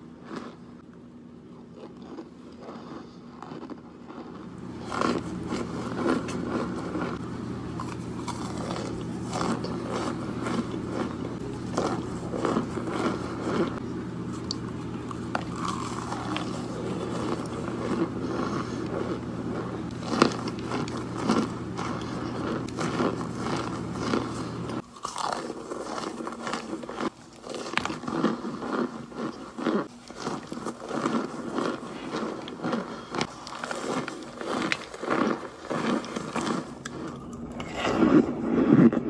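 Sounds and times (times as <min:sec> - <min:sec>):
person crunching and chewing food: 0:00.0 - 0:39.0
steady low hum: 0:00.0 - 0:39.0.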